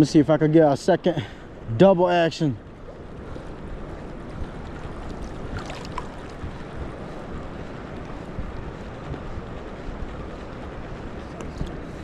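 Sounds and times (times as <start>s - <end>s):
wind buffeting microphone: 0.0s - 12.0s
small waves lapping: 4.5s - 8.2s.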